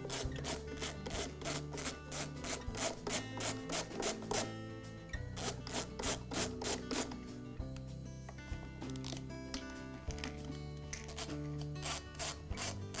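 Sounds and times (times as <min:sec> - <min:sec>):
ratcheting screwdriver rasping: 0:00.1 - 0:04.5, 0:11.0 - 0:13.0.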